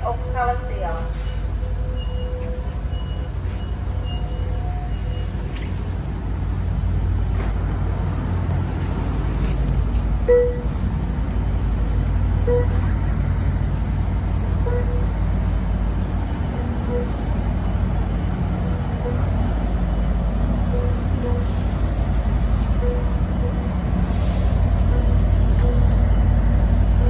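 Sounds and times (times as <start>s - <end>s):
train squeals: 0.0s - 6.0s, 10.2s - 10.9s, 12.4s - 13.5s, 14.5s - 15.6s, 16.4s - 17.4s, 18.6s - 19.4s, 20.7s - 27.0s
passenger train rumbling: 0.0s - 27.0s.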